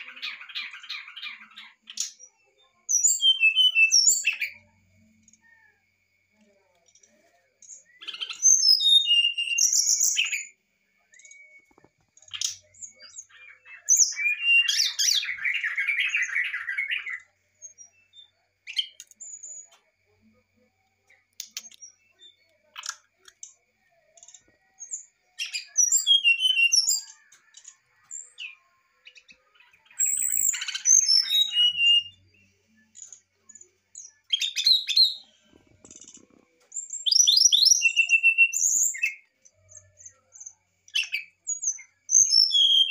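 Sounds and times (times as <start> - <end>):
bird whistled notes: 25.4 - 27.1, 30.0 - 32.2, 37.0 - 39.2.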